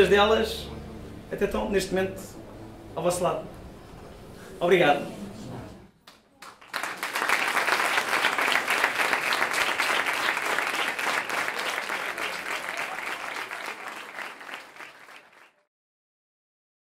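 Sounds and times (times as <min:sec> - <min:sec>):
audience applauding: 0:06.0 - 0:15.7.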